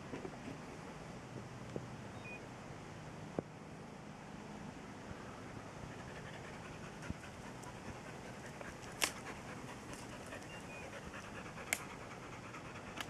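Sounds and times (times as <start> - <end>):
dog panting: 5.9 - 13.0.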